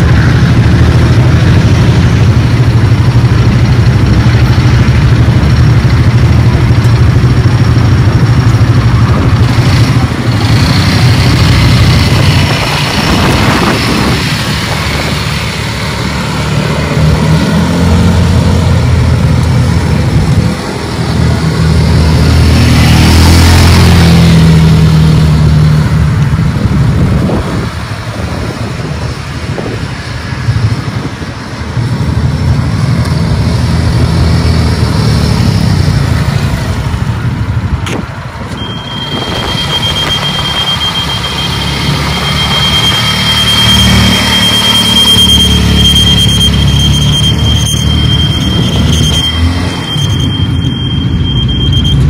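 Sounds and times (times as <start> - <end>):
golf cart engine running: 0.0 - 17.0
steady high-pitched beep: 38.5 - 52.0.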